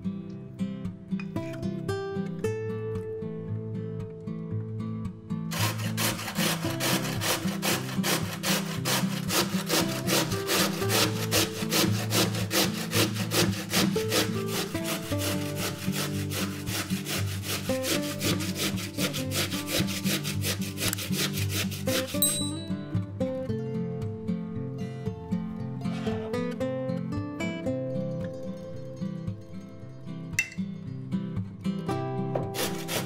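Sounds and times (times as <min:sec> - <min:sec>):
guitar music: 0:00.0 - 0:33.0
potato grating rasps: 0:05.5 - 0:22.5, 0:32.6 - 0:33.0.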